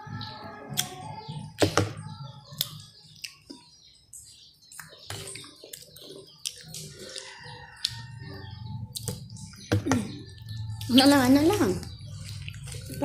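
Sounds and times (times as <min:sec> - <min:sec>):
wet chewing and lip smacks: 0:02.5 - 0:03.7, 0:04.7 - 0:08.1, 0:12.0 - 0:13.0.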